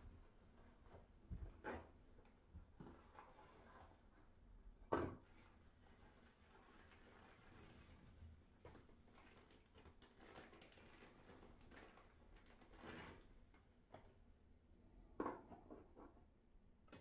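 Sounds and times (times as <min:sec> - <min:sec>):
plastic packet rustling: 0:08.6 - 0:13.3.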